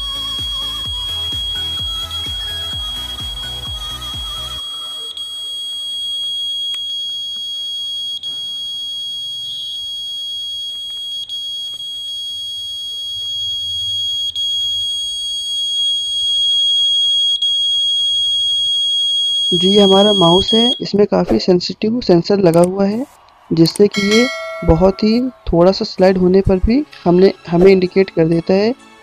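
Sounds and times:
buzzer high-pitched tone: 0:00.0 - 0:10.7, 0:18.0 - 0:20.9.

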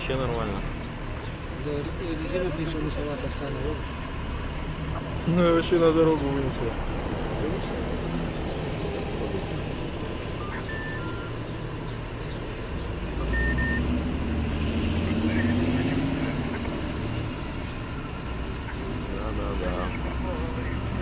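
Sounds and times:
heavy diesel engines running: 0:00.0 - 0:21.0
high beeps: 0:10.4 - 0:11.4, 0:13.3 - 0:13.9.

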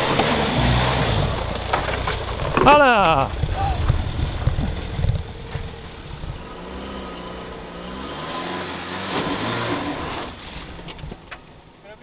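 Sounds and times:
car engine revving under load: 0:00.0 - 0:11.8.

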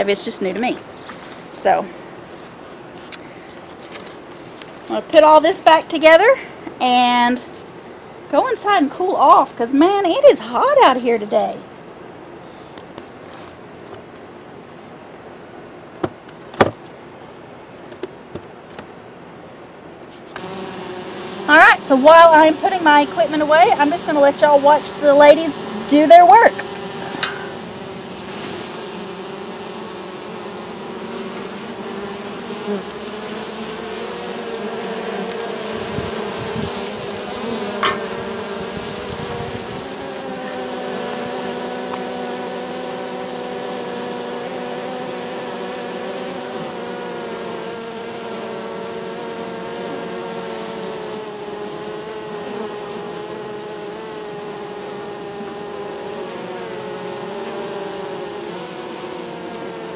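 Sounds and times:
bees buzzing: 0:20.3 - 0:59.9.

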